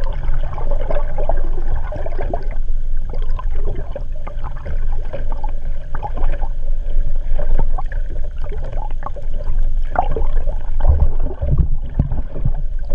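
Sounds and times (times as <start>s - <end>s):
water rushing and gurgling: 0.0s - 12.9s
bubbly pops: 10.8s - 12.6s.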